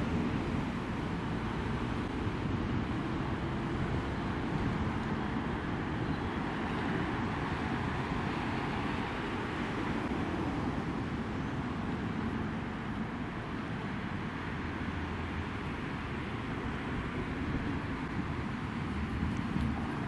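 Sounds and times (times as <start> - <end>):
electric tram rolling: 0.0 - 15.2
cars driving past: 0.0 - 20.0.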